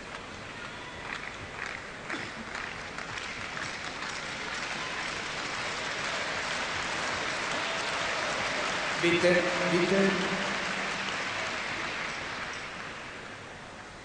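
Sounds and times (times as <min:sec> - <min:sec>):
crowd applauding: 0:00.6 - 0:13.8.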